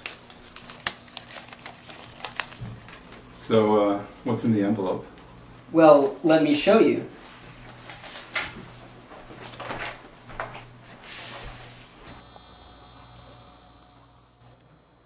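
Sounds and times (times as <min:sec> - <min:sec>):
paper envelope rustling: 0:00.0 - 0:04.4, 0:05.8 - 0:06.3, 0:07.5 - 0:08.6
faint hum: 0:00.0 - 0:15.0.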